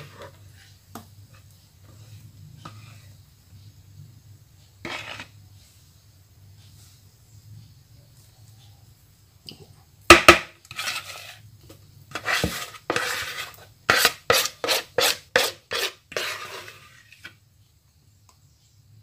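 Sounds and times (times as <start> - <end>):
spatula scraping cake pan: 0.0 - 3.8, 4.8 - 5.9, 10.3 - 17.4.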